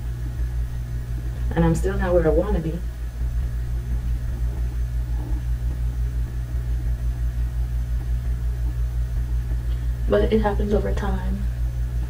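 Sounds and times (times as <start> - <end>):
pulsing low rumble: 0.0 - 12.0.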